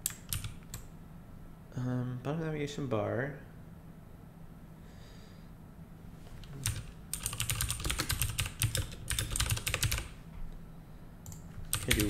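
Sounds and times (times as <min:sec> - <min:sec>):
typing on computer keyboard: 0:00.0 - 0:00.9, 0:06.4 - 0:10.2, 0:11.2 - 0:12.0.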